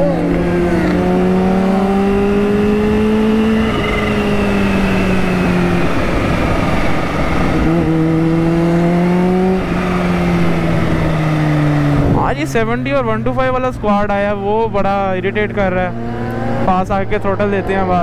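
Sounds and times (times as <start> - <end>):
wind and road noise: 0.0 - 18.0.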